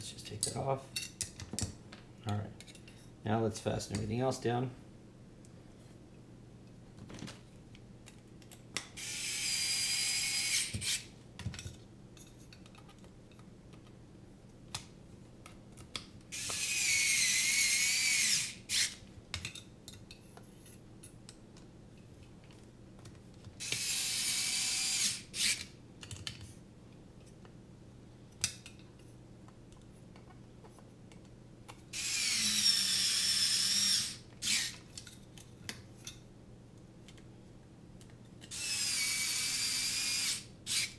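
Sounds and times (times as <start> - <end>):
electric screwdriver whirring: 9.0 - 11.0, 16.4 - 18.9, 23.6 - 25.6, 32.0 - 34.8, 38.5 - 40.9.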